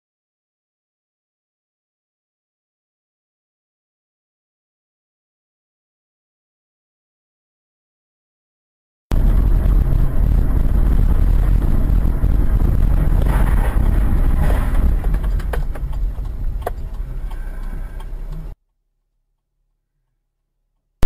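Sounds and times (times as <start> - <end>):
cars colliding: 9.1 - 18.6
low cabin rumble: 9.1 - 18.6
sharp clicks: 13.0 - 18.6.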